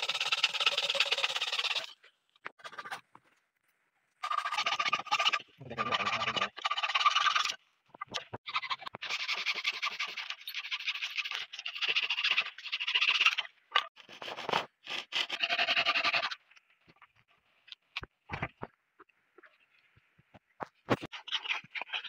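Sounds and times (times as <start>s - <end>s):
hand saw rasping through branch: 14.0s - 16.3s.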